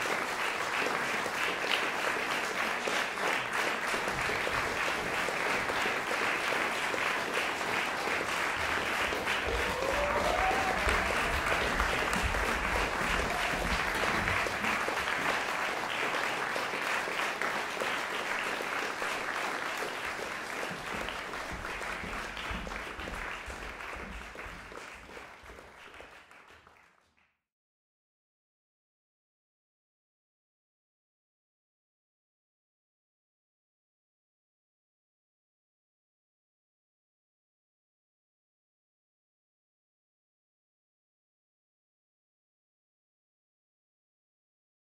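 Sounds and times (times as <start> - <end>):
audience applauding: 0.0 - 27.3.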